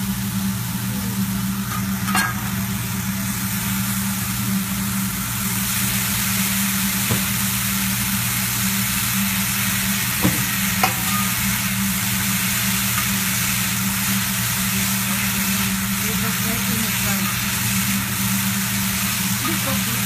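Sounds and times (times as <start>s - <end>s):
food sizzling on a griddle: 0.0s - 20.0s.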